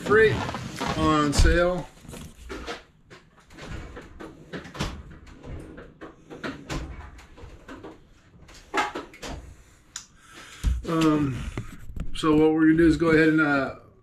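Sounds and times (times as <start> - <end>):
drawers sliding: 0.0 - 9.8.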